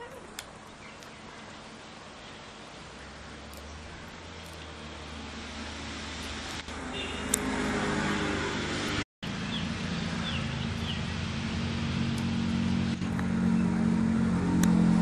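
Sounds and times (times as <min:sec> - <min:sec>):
bird chirps: 0:09.4 - 0:11.1.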